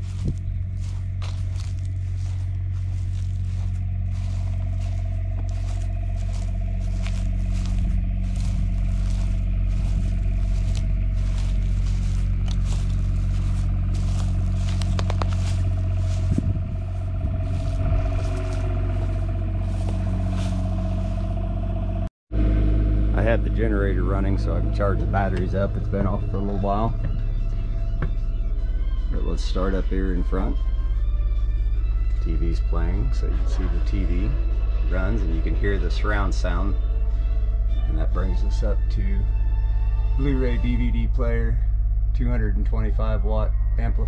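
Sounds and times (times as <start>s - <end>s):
footsteps on dry grass: 0.0s - 22.1s, 23.8s - 28.6s, 29.2s - 36.8s
generator humming: 0.0s - 44.0s.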